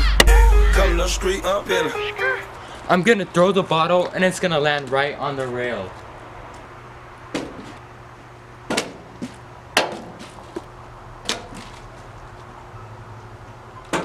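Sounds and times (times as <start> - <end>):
low steady hum: 0.0 - 2.8.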